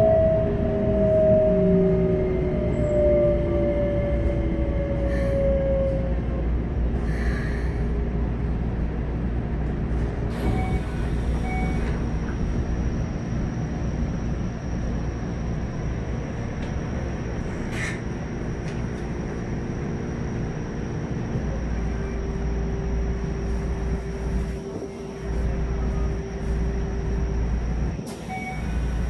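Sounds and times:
train inverter whine: 0.0s - 29.0s
wheel and rail rumble: 0.0s - 29.0s
short beeps: 28.2s - 28.8s.

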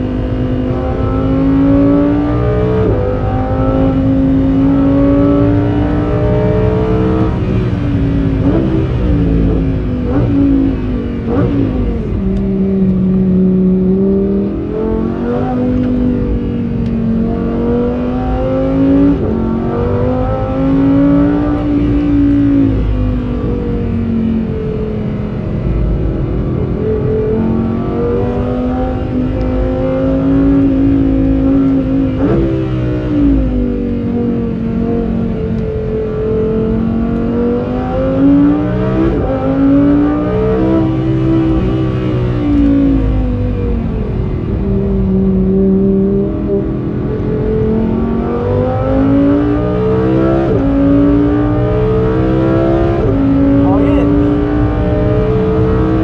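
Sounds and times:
sports car engine revving: 0.0s - 56.0s.

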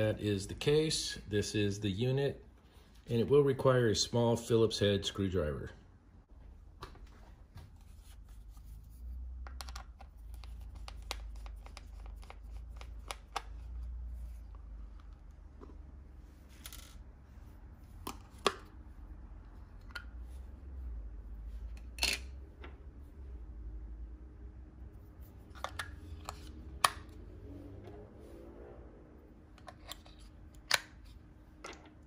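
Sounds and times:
plastic clicks taps and scratches: 9.4s - 13.9s.

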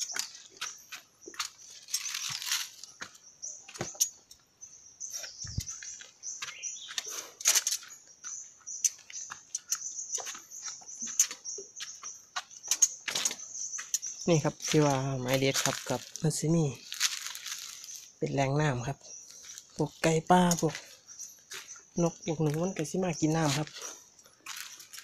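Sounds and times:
footsteps crunching dry leaves: 0.0s - 4.0s, 10.2s - 18.4s, 19.2s - 25.0s.

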